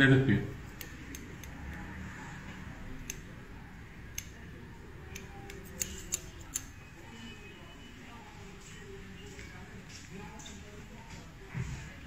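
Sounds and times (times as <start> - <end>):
scissors snipping hair: 0.6 - 2.0, 2.8 - 3.4, 4.1 - 6.8.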